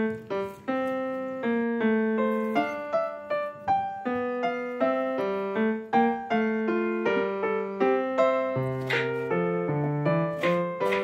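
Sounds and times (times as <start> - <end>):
piano melody: 0.0 - 11.0.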